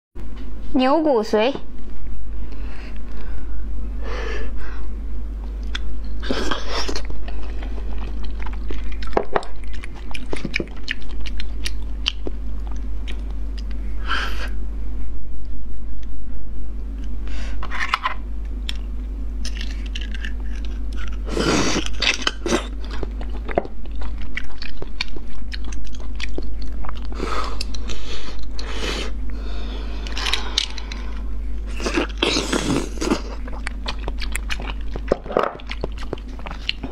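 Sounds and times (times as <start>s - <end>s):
wet chewing: 5.6s - 13.8s, 18.6s - 28.9s, 29.9s - 36.9s.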